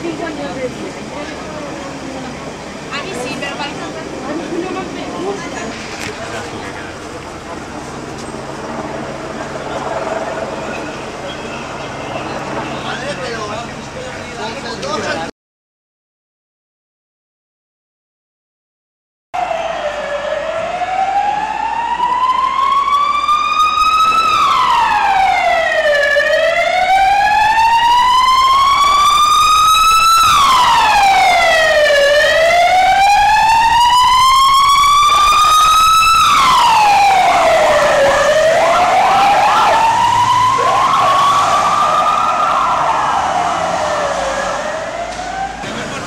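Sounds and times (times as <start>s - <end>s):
police siren wailing: 1.9s - 13.8s, 19.4s - 46.0s.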